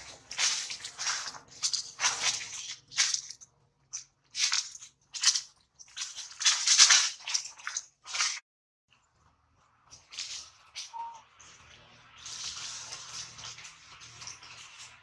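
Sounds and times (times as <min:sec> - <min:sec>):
dry leaves crunching and rustling: 0:00.0 - 0:08.4.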